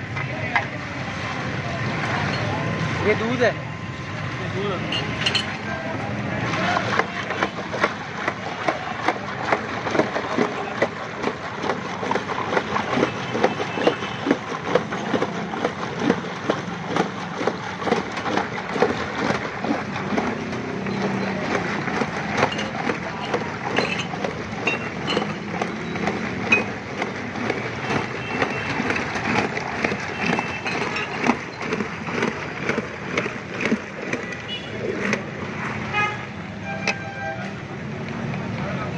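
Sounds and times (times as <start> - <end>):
background hubbub: 0.0 - 38.9
ice clattering in metal pot: 16.8 - 34.4.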